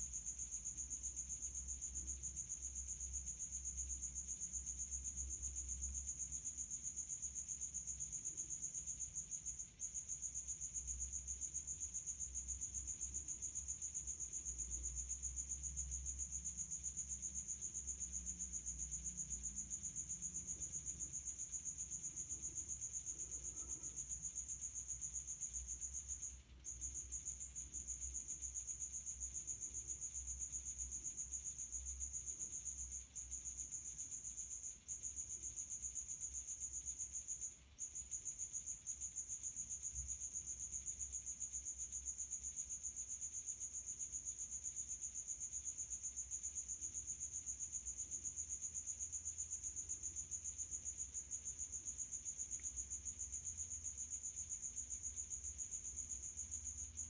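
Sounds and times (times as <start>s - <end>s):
cricket chirping: 0.0s - 57.0s.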